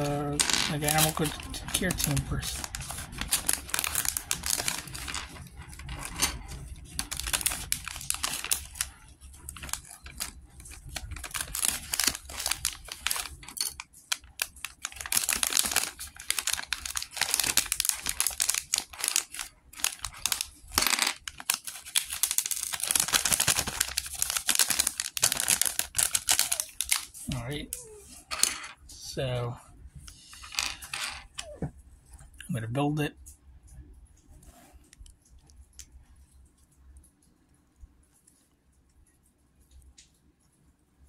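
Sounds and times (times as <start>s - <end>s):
plastic packet tearing and crinkling: 0.0s - 27.8s.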